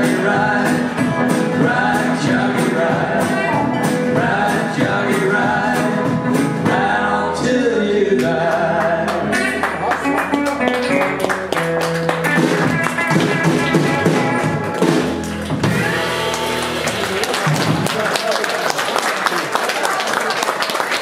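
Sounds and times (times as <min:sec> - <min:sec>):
man singing: 0:00.0 - 0:09.9
blues band playing: 0:00.0 - 0:18.2.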